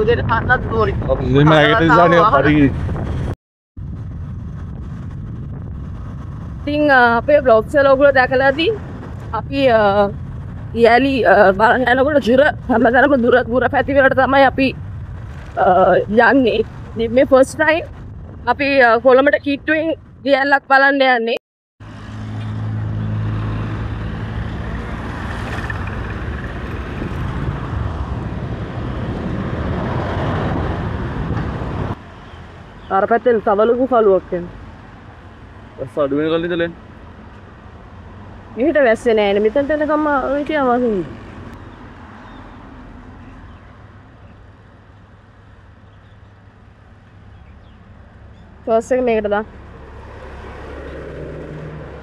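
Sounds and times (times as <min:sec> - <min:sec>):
wind and road rush: 0:00.0 - 0:52.0.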